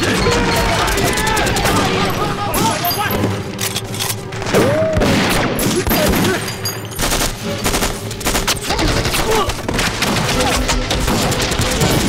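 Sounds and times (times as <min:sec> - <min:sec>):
gunshots: 0:04.3 - 0:12.0.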